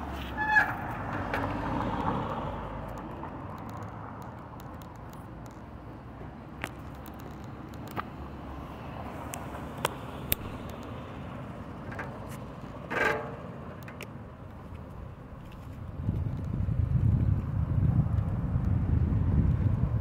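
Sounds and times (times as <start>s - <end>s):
sharp clicks: 2.2s - 5.6s.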